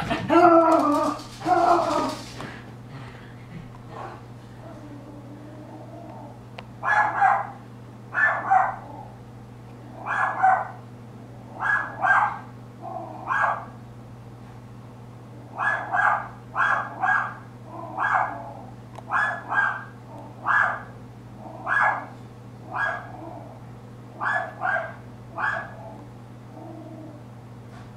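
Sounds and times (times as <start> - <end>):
small dog barking sharply: 6.8 - 7.6, 8.2 - 8.8, 10.1 - 10.8, 11.6 - 12.5, 13.3 - 13.7, 15.6 - 17.4, 19.1 - 19.9, 21.7 - 22.1, 22.7 - 23.1, 24.2 - 25.8.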